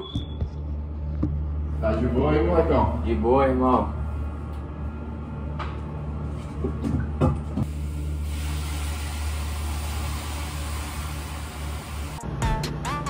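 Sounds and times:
steady low hum: 0.0s - 12.5s
water hissing on hot stones: 7.7s - 12.2s.

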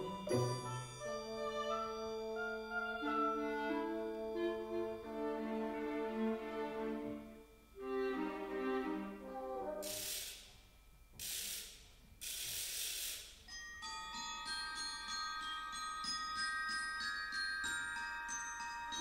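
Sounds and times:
glockenspiel ringing notes: 0.0s - 9.9s, 13.4s - 19.0s
orchestra playing soft phrase: 2.6s - 10.1s
hissing percussion swells: 9.2s - 10.6s.

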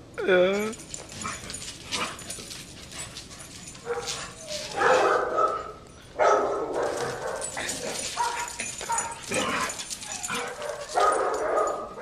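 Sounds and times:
dogs barking: 3.8s - 12.0s.

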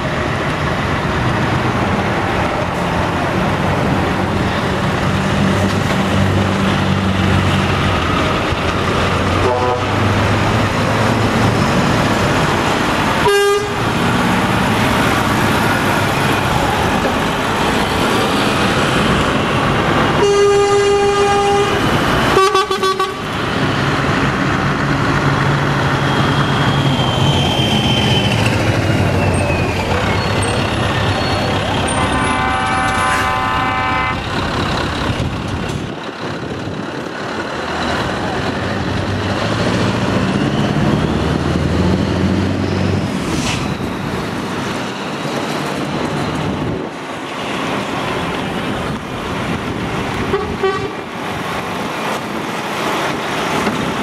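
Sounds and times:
diesel lorries pulling away: 0.0s - 22.4s, 23.0s - 54.0s
air horn toots: 9.4s - 10.0s, 13.2s - 13.8s, 20.2s - 23.3s, 31.8s - 34.2s, 50.3s - 51.0s
higher-pitched horn: 9.4s - 10.0s, 13.2s - 13.8s, 20.2s - 23.3s, 31.1s - 34.3s, 50.3s - 51.0s.

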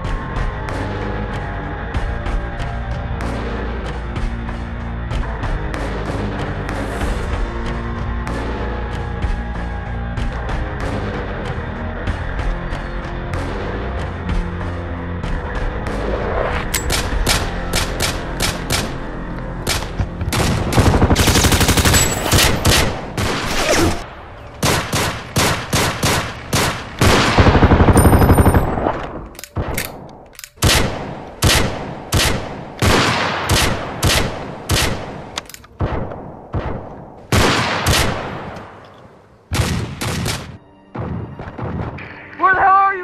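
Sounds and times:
automatic gunfire bursts: 20.4s - 22.9s
separate gunshots: 24.6s - 38.8s, 39.5s - 42.0s.

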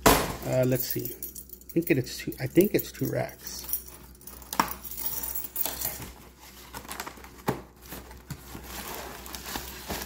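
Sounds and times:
plastic wrapping crinkling: 5.5s - 10.0s.

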